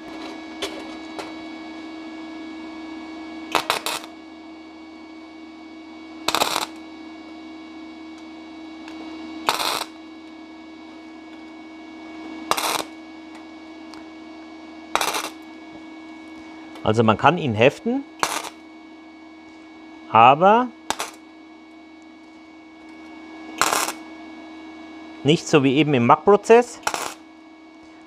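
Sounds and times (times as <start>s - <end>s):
welder humming: 0.0s - 28.0s
welding arc crackling: 3.5s - 4.2s, 6.2s - 6.8s, 8.8s - 10.0s, 12.4s - 13.0s, 14.9s - 15.5s, 18.2s - 18.6s, 20.8s - 21.2s, 22.9s - 24.1s, 26.6s - 27.2s.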